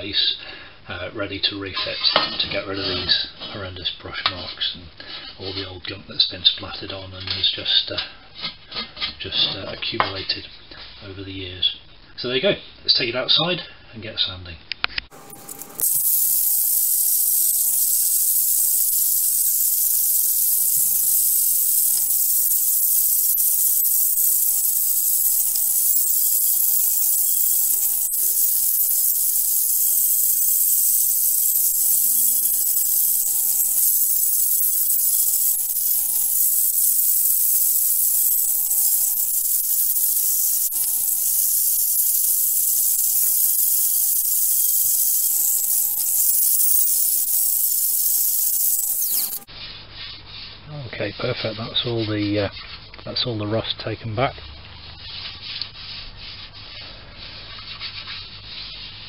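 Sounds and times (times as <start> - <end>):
abrasive disc hissing on metal: 15.1 - 49.5.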